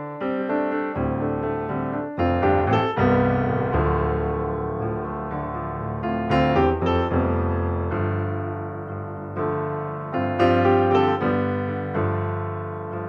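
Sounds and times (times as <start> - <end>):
piano music: 0.0 - 13.0.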